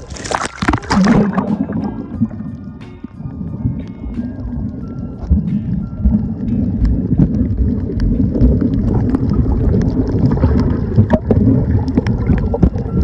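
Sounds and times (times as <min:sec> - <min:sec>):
underwater churning rumble: 0:00.0 - 0:13.0
sharp clicks and crackles: 0:06.8 - 0:13.0.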